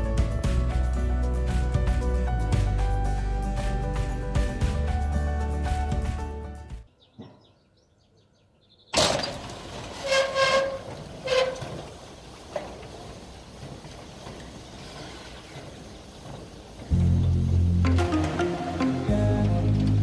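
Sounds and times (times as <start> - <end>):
background music: 0.0 - 6.9, 16.9 - 20.0
metal roller shutter rattling: 9.0 - 20.0.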